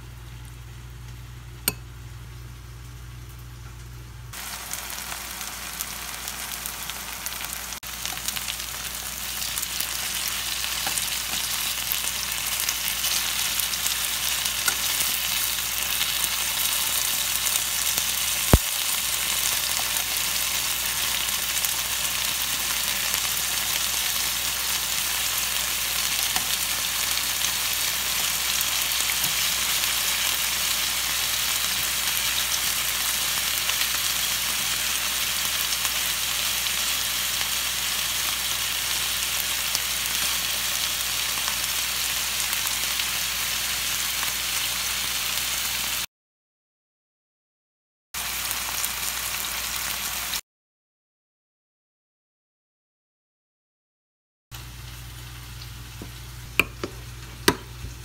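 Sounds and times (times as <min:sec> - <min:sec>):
chicken sizzling in oil: 0:04.3 - 0:46.1, 0:48.2 - 0:50.4.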